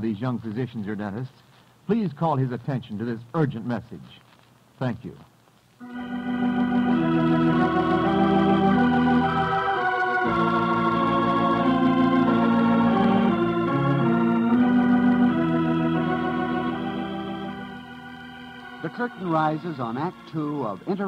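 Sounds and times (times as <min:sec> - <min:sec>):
organ chords: 0:05.8 - 0:21.0.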